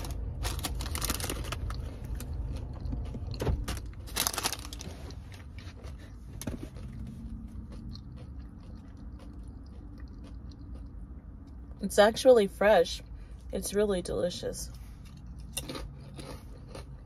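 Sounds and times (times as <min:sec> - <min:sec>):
paper bag crinkling: 0:00.0 - 0:02.2, 0:03.6 - 0:05.4
low rumble inside car: 0:00.0 - 0:15.4.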